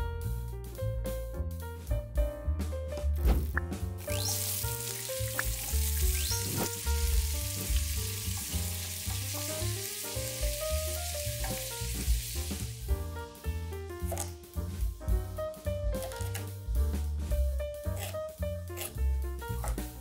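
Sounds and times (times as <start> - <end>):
background music: 0.0 - 20.0
onion sizzling in oil: 4.0 - 14.8, 17.8 - 20.0.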